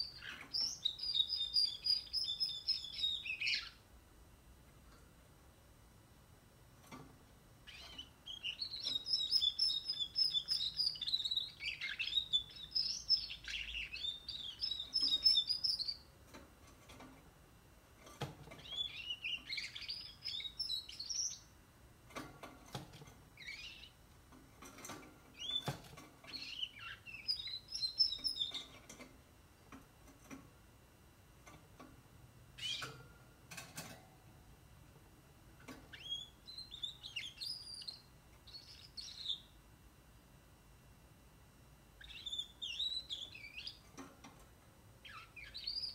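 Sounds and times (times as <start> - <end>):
canary warbling song: 0.0 - 3.8, 7.6 - 16.1, 18.5 - 21.6, 23.4 - 24.0, 24.8 - 29.0, 32.6 - 33.1, 35.6 - 39.6, 42.0 - 44.1, 45.0 - 45.9.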